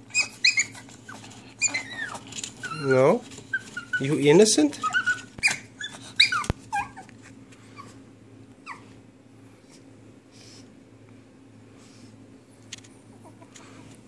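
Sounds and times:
puppy whimpering: 0.0 - 8.0, 8.6 - 9.0, 13.0 - 13.6.

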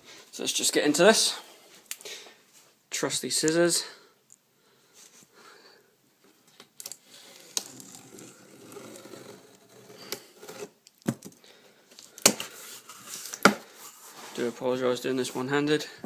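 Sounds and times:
scissors cutting cardboard: 7.4 - 10.8.

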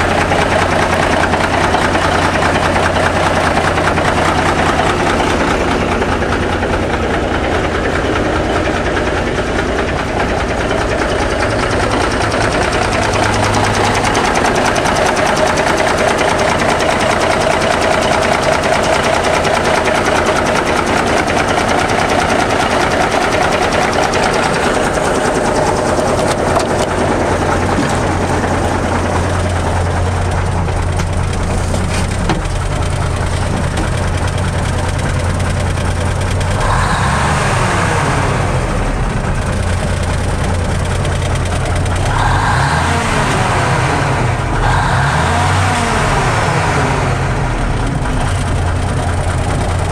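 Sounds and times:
diesel truck engine idling: 0.0 - 49.9.

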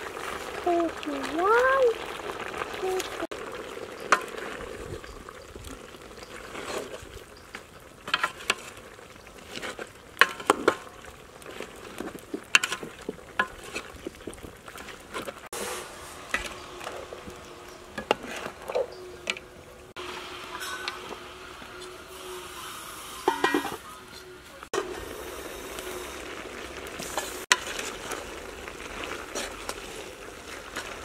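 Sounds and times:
metal ladle scraping a pot: 6.2 - 19.6, 20.5 - 24.2.

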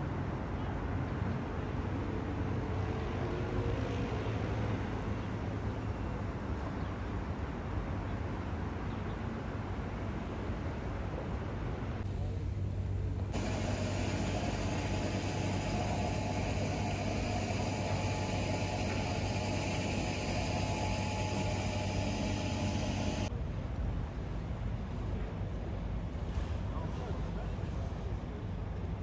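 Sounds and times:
engine drone: 13.2 - 23.3
faint high whine: 13.3 - 23.3.

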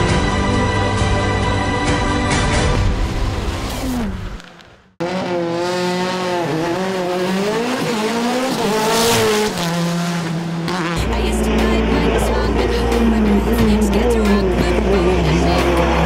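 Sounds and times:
race car engine revving: 5.0 - 16.0.

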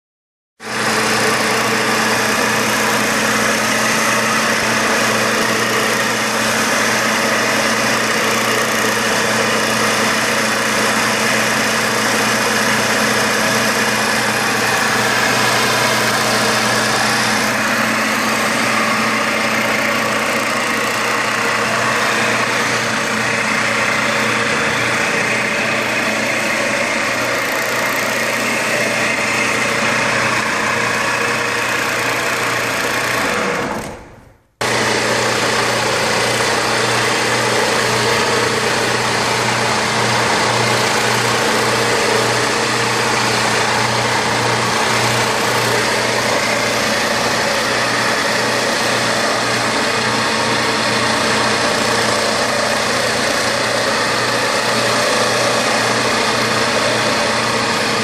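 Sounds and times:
floor grinder motor humming: 0.6 - 58.0
abrasive pad rasping on stone: 0.8 - 33.2.

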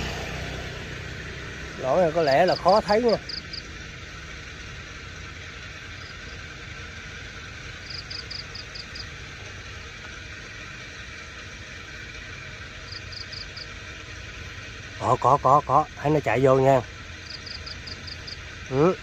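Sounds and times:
outdoor hiss: 0.0 - 19.0
rapid high-pitched chirps: 1.9 - 3.8, 7.8 - 9.2, 12.8 - 13.8, 15.0 - 19.0.

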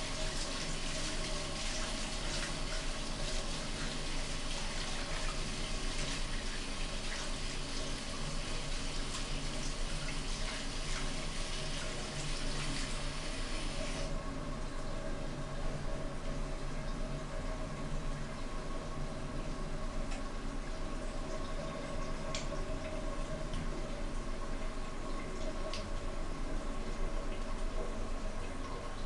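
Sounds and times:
water running from tap: 0.0 - 14.2.

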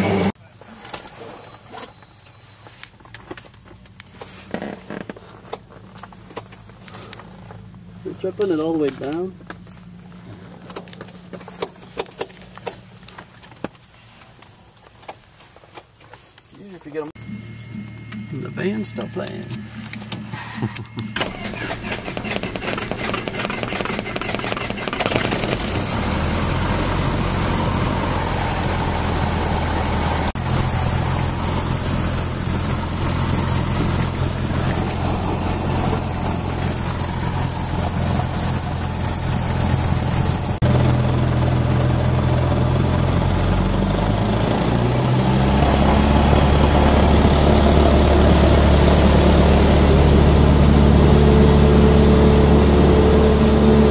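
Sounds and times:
propeller engine starting and running: 17.2 - 53.9.

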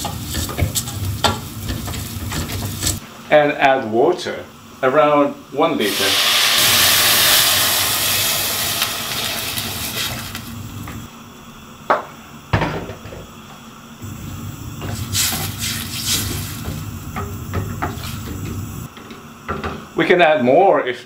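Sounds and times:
water pouring into pot: 5.9 - 10.4.

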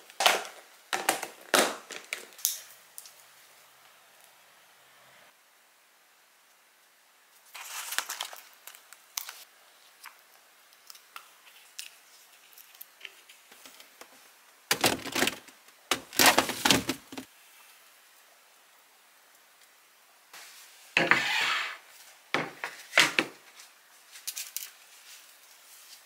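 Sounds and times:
plastic containers knocking and scraping: 14.7 - 17.3.

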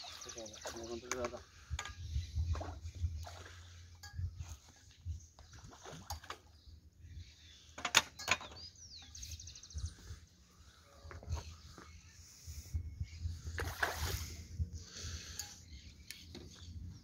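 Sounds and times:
light water splashing: 2.5 - 6.6, 13.6 - 14.3.

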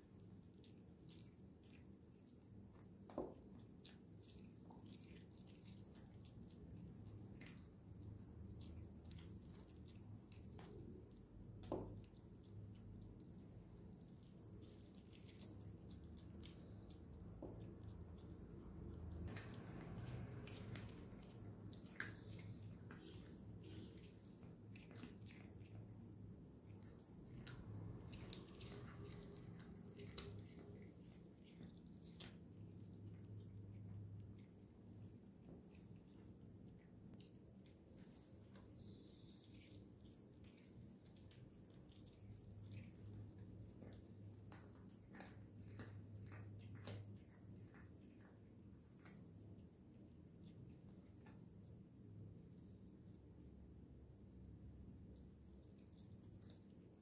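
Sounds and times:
faint clicks and taps: 37.0 - 49.6.

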